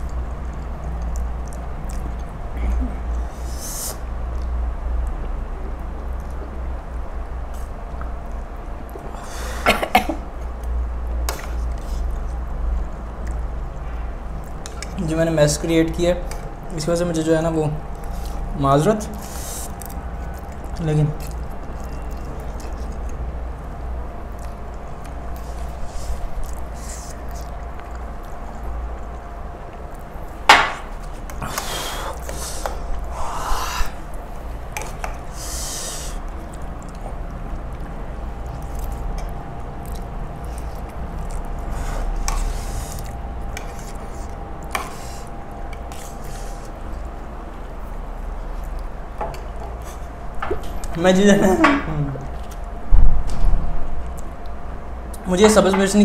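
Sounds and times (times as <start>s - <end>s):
steady low hum: 0.0s - 56.0s
person coughing: 9.5s - 10.3s.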